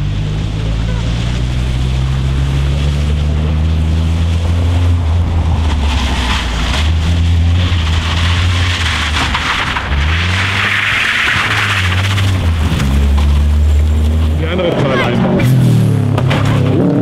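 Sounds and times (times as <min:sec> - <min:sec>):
tyres rushing on gravel: 0:00.0 - 0:15.4
car engine under load: 0:00.0 - 0:17.0.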